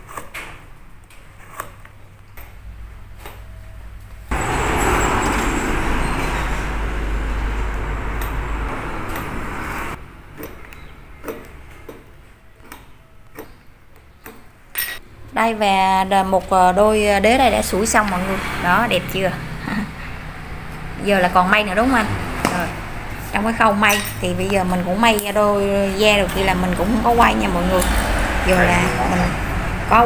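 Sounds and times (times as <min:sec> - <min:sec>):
loud rushing noise: 0:04.3 - 0:10.0.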